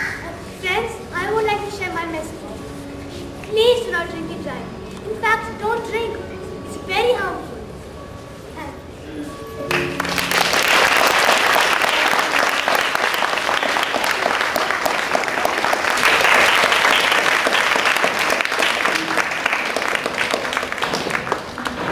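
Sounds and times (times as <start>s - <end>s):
audience applauding: 9.7s - 21.9s.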